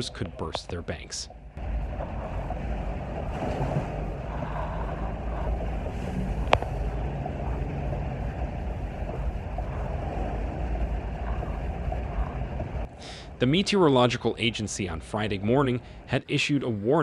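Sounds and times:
vehicle engine rumble: 0.0 - 16.2
water splashing: 1.3 - 13.3.

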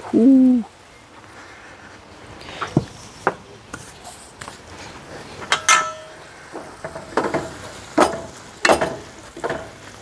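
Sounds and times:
utensils clinking against frying pan: 5.5 - 9.9.

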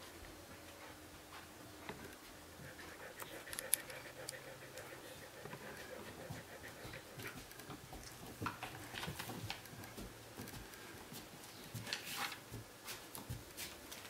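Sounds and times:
dog footsteps and claw clicks: 1.8 - 14.0.

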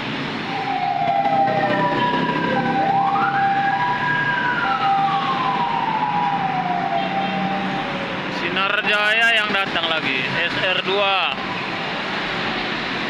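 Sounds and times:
busy road traffic: 0.0 - 13.0
vehicle siren wailing: 0.4 - 9.1.

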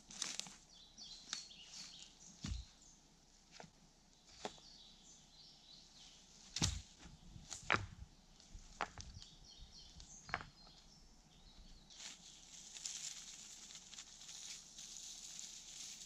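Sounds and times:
small birds chirping: 0.0 - 16.0
dry branches snapping: 0.1 - 0.6, 6.5 - 6.9.

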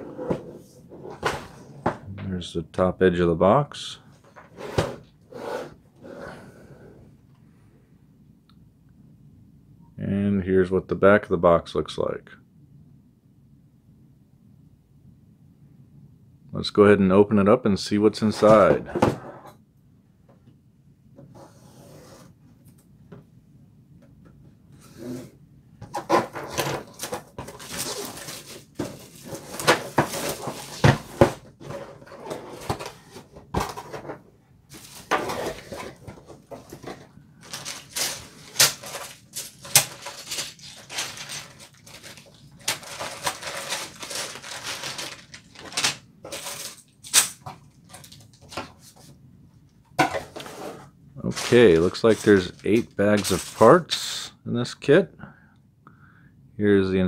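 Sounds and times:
cardboard sliding and scraping: 4.5 - 6.3, 21.3 - 22.4, 24.8 - 27.0, 50.2 - 53.6
plastic bags crinkling: 36.8 - 46.8, 51.3 - 53.7.

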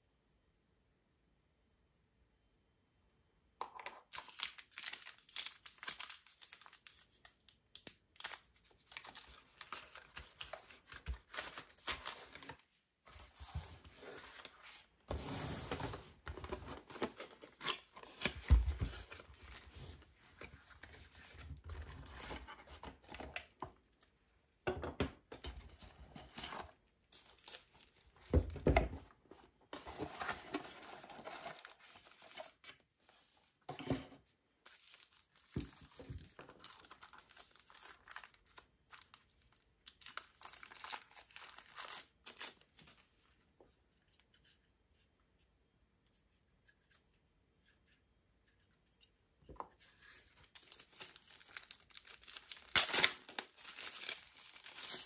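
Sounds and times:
packaging crinkling and tearing: 4.1 - 12.7, 34.6 - 42.7, 50.4 - 55.0.

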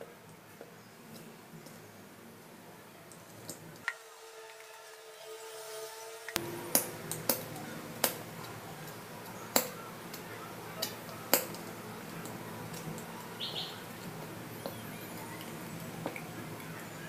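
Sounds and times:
faint high chirp: 14.5 - 17.0.

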